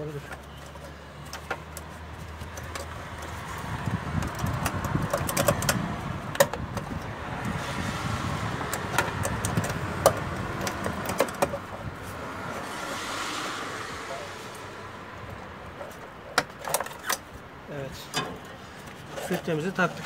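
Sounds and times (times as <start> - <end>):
rustling handling noise: 15.7 - 20.0.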